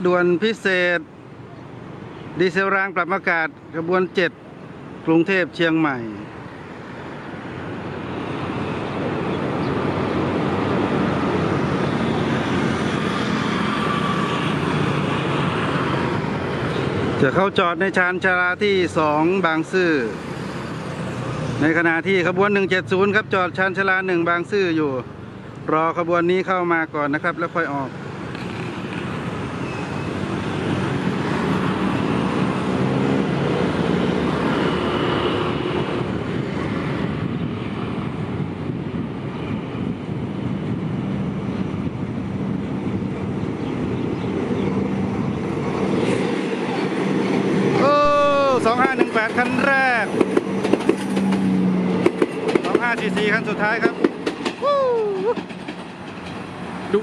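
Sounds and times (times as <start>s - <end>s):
diesel railcar engine drone: 5.9s - 57.0s
faint high squeal: 29.6s - 30.2s.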